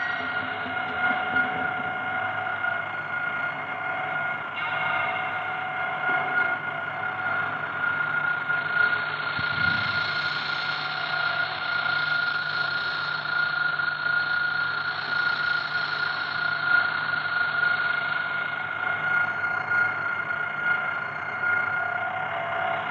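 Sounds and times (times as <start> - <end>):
low hum: 0.0 - 22.9.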